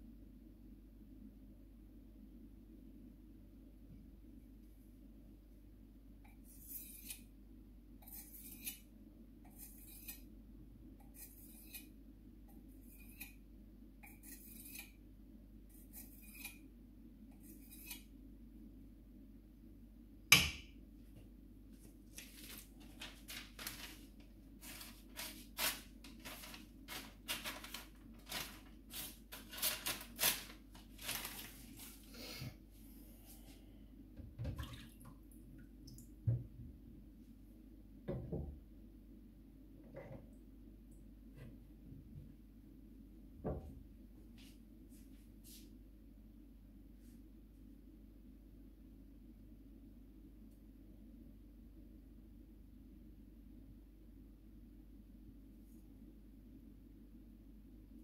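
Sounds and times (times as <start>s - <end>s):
stone scraping knife blade: 6.6s - 7.3s, 8.0s - 8.8s, 9.5s - 10.3s, 11.0s - 11.9s, 14.0s - 15.0s, 15.7s - 16.6s, 17.4s - 18.1s.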